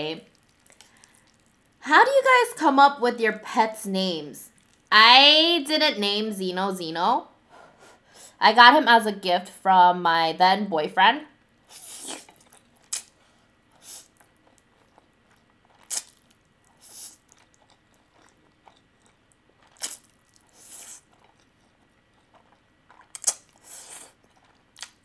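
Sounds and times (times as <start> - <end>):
noodles being slurped: 11.7 - 13.1, 15.8 - 18.4, 19.7 - 21.5
wet mouth clicks: 11.8 - 13.1, 15.8 - 16.2, 19.8 - 21.1, 23.1 - 24.2.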